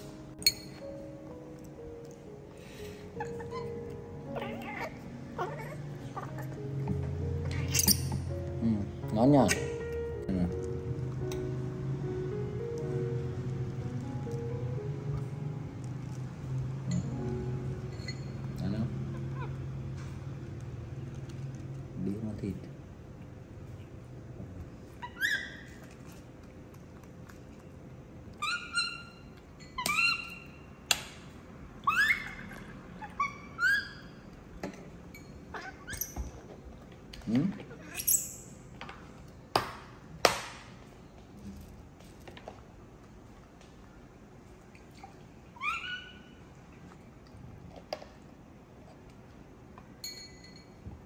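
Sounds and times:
baby monkey squeaky calls: 0:25.0 - 0:25.9, 0:28.4 - 0:30.7, 0:31.8 - 0:34.2, 0:37.9 - 0:38.4, 0:45.6 - 0:46.4.

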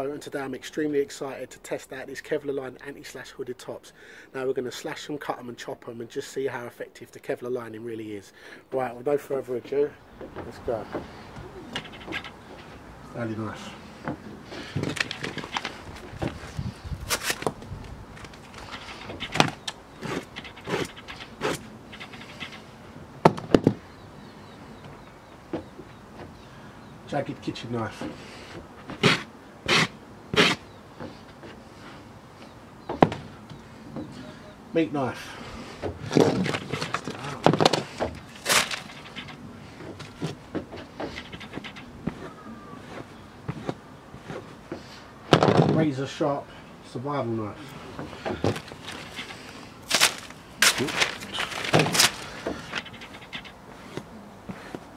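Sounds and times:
paper sheets being handled: 0:14.5 - 0:22.6, 0:36.0 - 0:44.5, 0:48.0 - 0:53.9
blade ripping fabric: 0:38.3 - 0:39.3, 0:48.5 - 0:53.3.

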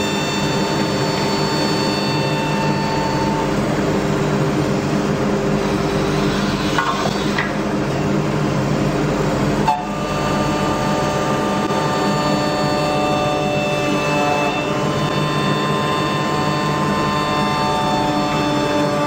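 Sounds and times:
machine hum and whir: 0:00.0 - 0:19.0
wood being cut: 0:09.7 - 0:19.0.

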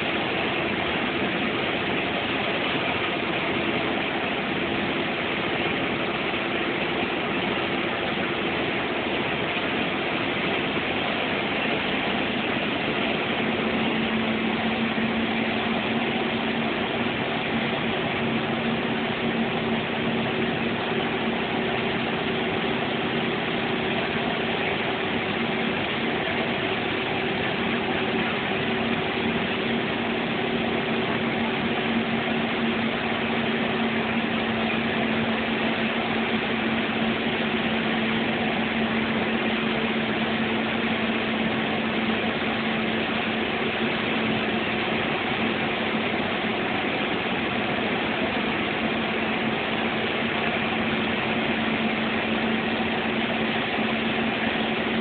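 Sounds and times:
heavy vehicle engine drone: 0:00.0 - 0:55.0
road noise: 0:00.0 - 0:55.0.

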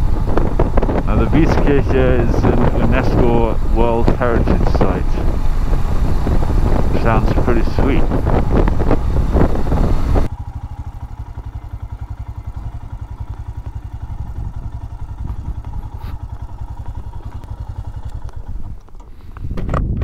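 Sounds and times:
motorcycle engine idling: 0:00.0 - 0:19.6
riding wind rush: 0:00.0 - 0:20.0.

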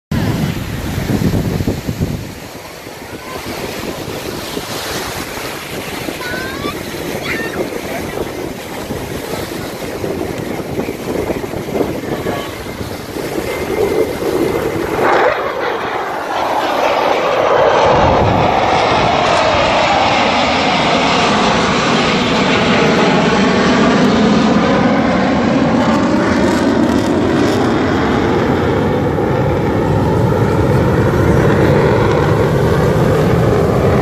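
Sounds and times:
wind buffeting microphone: 0:00.1 - 0:34.0
fighter jets flying: 0:00.2 - 0:34.0
surf breaking: 0:00.7 - 0:22.2.

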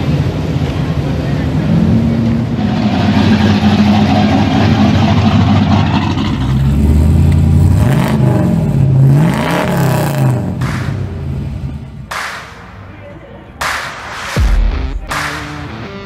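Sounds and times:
car engine revving: 0:00.0 - 0:12.8.

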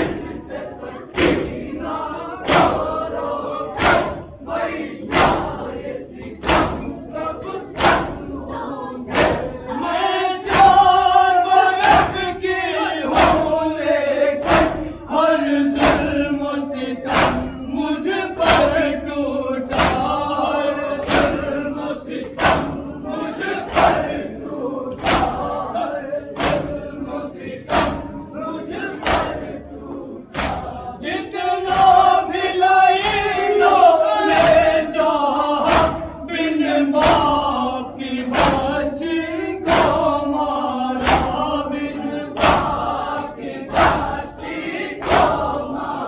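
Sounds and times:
crowd of men chanting: 0:00.0 - 0:46.0
chest beating slaps: 0:01.1 - 0:01.7, 0:02.4 - 0:03.0, 0:03.7 - 0:04.3, 0:05.0 - 0:07.0, 0:07.7 - 0:08.3, 0:09.1 - 0:09.7, 0:10.4 - 0:11.2, 0:11.8 - 0:12.4, 0:14.4 - 0:15.0, 0:15.7 - 0:16.3, 0:17.1 - 0:17.6, 0:18.4 - 0:19.0, 0:19.6 - 0:21.6, 0:22.2 - 0:23.0, 0:24.9 - 0:25.6, 0:26.2 - 0:28.2, 0:28.9 - 0:29.6, 0:30.3 - 0:30.9, 0:35.6 - 0:36.2, 0:38.2 - 0:38.8, 0:39.6 - 0:41.7, 0:42.3 - 0:44.2.

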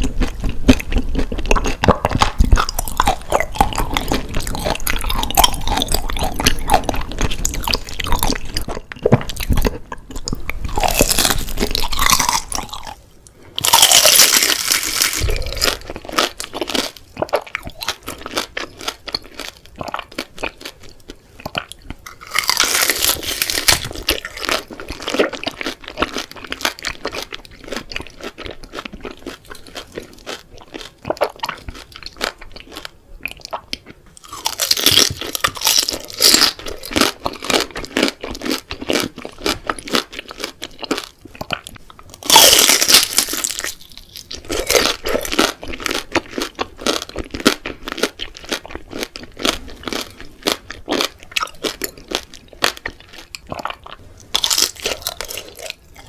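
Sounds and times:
crunchy bites: 0:00.0 - 0:13.0, 0:13.6 - 0:32.9, 0:33.5 - 0:56.0
wet clicking chewing: 0:15.2 - 0:22.6, 0:23.6 - 0:42.5.

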